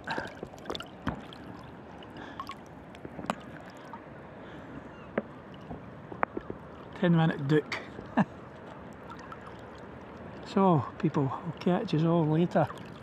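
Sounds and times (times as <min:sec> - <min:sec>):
sharp splashes: 0:00.0 - 0:04.0, 0:08.6 - 0:10.6, 0:11.4 - 0:13.0
water sloshing around swimmer: 0:00.0 - 0:13.0.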